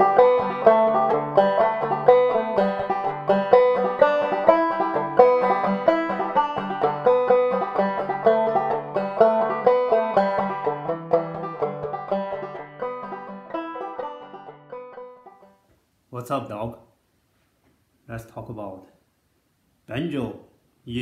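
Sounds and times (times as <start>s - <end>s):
banjo playing: 0.0s - 15.6s.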